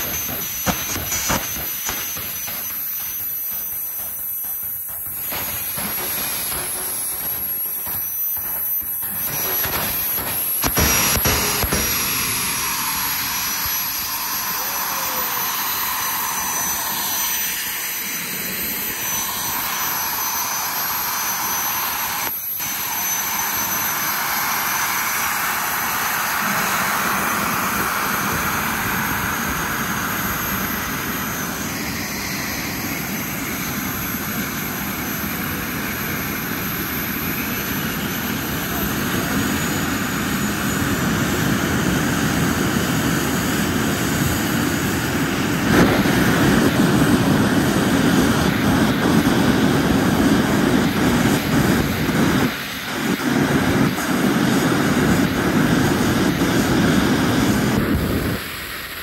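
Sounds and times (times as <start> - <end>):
wind and road noise: 40.2 - 59.0.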